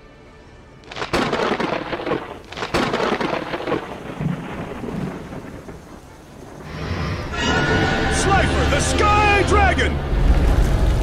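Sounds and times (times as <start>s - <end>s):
thunder crack: 0.9s - 7.8s
thunder rumble: 0.9s - 9.0s, 10.0s - 11.0s.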